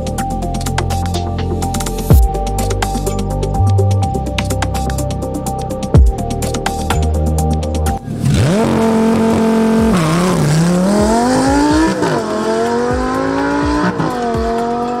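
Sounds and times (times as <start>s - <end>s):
sports car engine revving: 8.0s - 15.0s
car accelerating hard: 8.1s - 15.0s.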